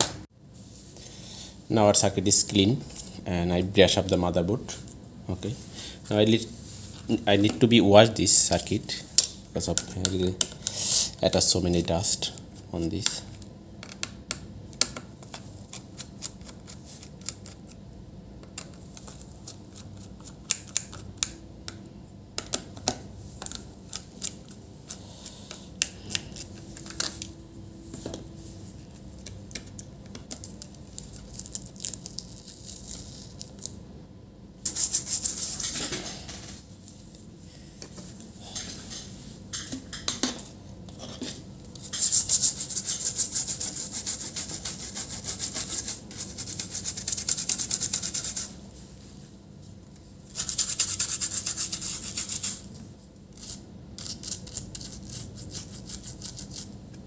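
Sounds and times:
brush scrubbing circuit board: 34.7 - 35.8, 41.9 - 48.5, 50.4 - 52.7.

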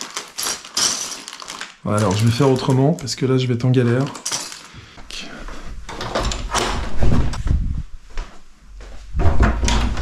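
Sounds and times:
plastic pieces clicking: 0.0 - 3.2, 3.8 - 4.7.

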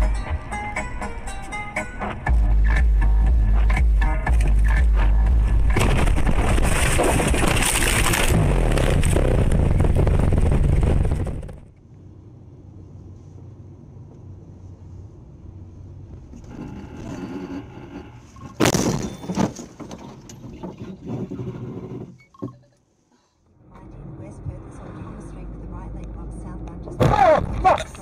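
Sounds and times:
car road noise from inside: 0.0 - 5.8, 23.6 - 28.0
vehicle crash: 4.7 - 11.7, 18.2 - 21.4
loud collision bang: 5.7 - 11.0.

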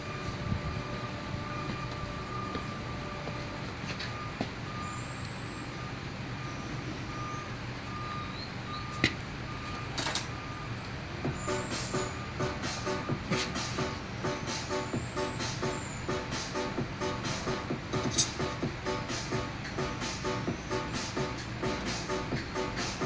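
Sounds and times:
high electronic beeps: 0.0 - 3.4
low machinery hum: 0.0 - 23.0.

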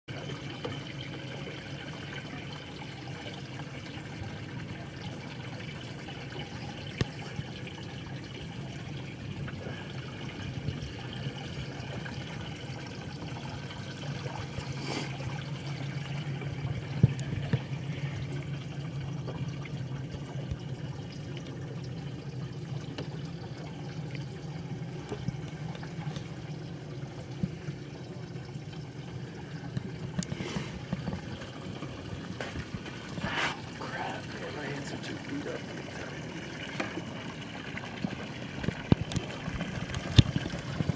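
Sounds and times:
water lapping against boat hull: 0.1 - 40.9
steady low hum: 0.2 - 40.9.

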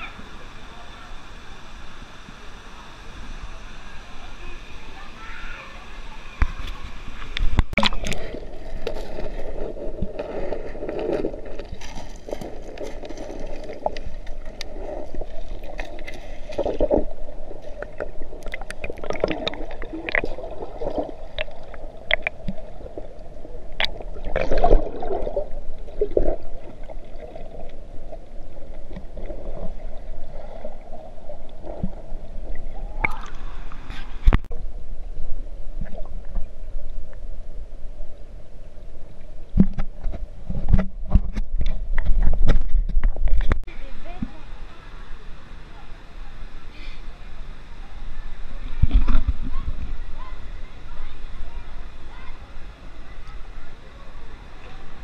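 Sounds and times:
muffled underwater rush: 0.0 - 55.0
underwater clicks and bubbling: 6.4 - 34.6, 35.8 - 37.3, 39.2 - 43.7
splash into water: 23.8 - 25.4.

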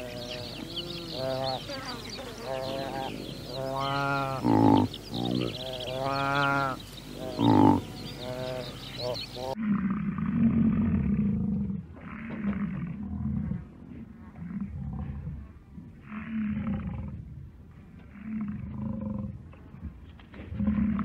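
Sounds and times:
buffalo bellowing: 0.0 - 9.8.

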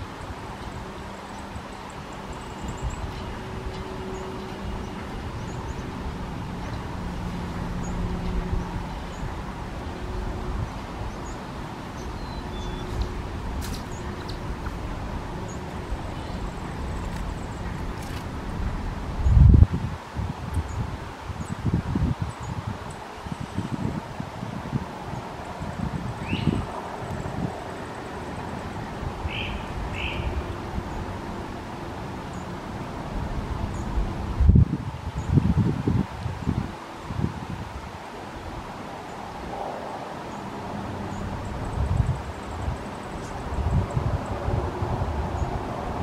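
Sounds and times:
low rumbling background noise: 0.0 - 46.0
faint high bird chirps: 12.0 - 13.1
wren call notes: 29.2 - 30.6.

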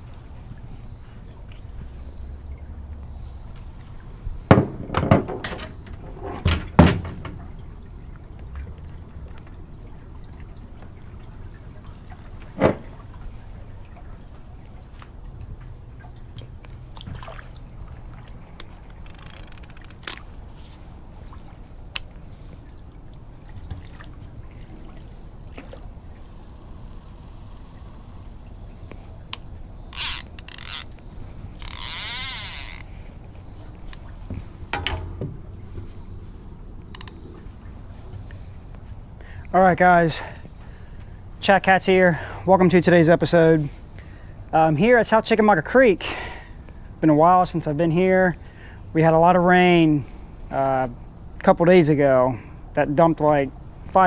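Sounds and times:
high-pitched insect chorus: 0.0 - 54.0
fishing tackle knocking on metal dock: 4.5 - 7.4, 34.7 - 35.4.

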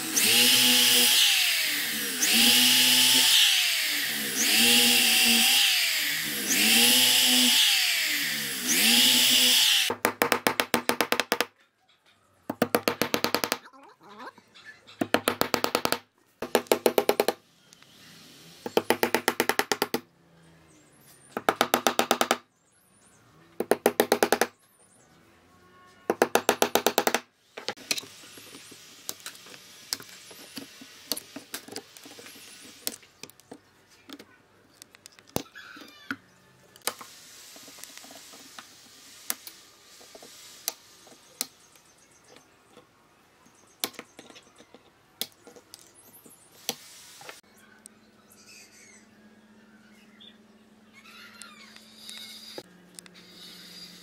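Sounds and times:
hammer driving nails into wood: 9.9 - 11.5, 12.5 - 13.6, 15.0 - 17.4, 18.6 - 20.0, 21.4 - 22.4, 23.6 - 24.5, 26.1 - 27.2.

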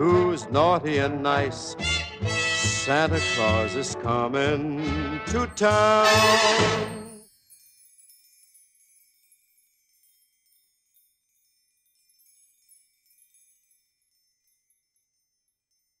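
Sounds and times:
faint high-pitched chimes: 5.6 - 16.0.

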